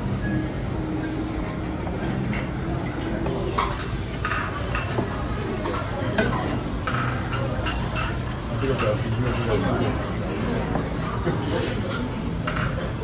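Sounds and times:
low background murmur: 0.0 - 13.0
metal utensils clinking on dishes: 3.2 - 13.0.

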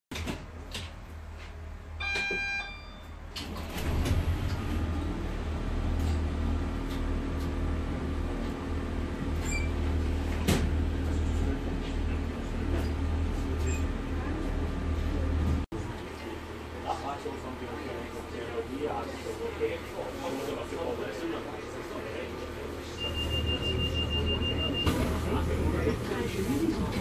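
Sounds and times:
short electronic beep: 2.0 - 3.2, 23.0 - 25.0
diesel engine rumbling: 3.2 - 27.0.

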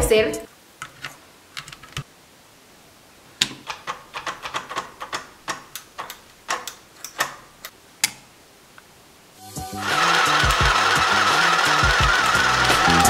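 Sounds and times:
plastic clicks and taps: 3.4 - 7.4.

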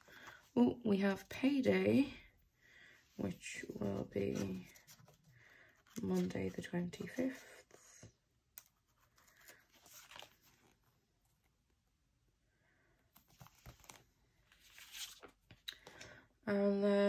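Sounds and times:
paper rustling: 3.4 - 7.8, 8.6 - 11.4, 13.1 - 15.7.

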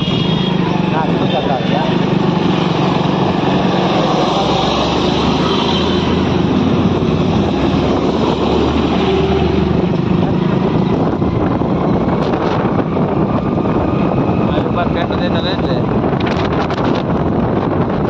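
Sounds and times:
motorcycle engine running: 0.0 - 4.4
truck engine rumble passing: 0.0 - 15.2
road and wind noise: 0.0 - 18.0.

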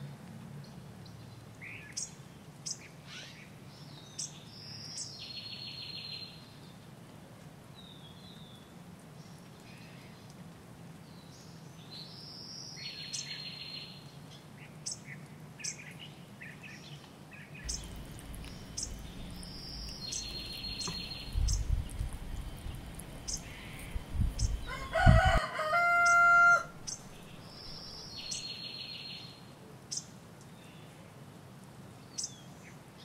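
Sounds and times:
small birds chirping: 17.6 - 29.3
rooster crowing: 23.2 - 27.3.

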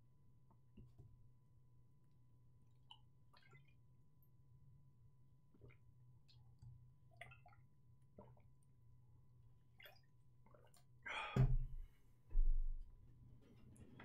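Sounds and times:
liquid and swallowing sounds: 7.1 - 8.6.

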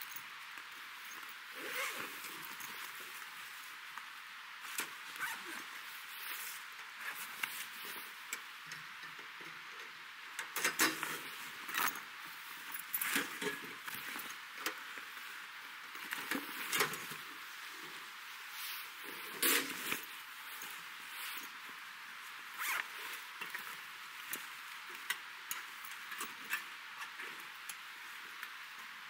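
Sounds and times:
nylon bag rustling: 1.0 - 3.8, 18.6 - 24.3.

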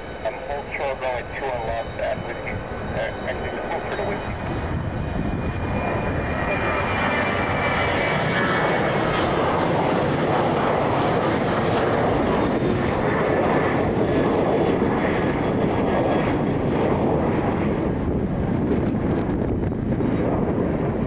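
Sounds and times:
faint high whine: 0.0 - 7.4
jet engines roaring: 0.0 - 21.0.

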